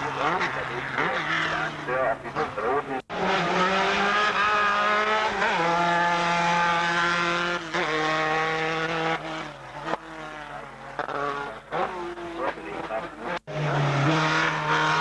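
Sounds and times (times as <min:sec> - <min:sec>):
racing car engine running hard: 0:00.0 - 0:15.0.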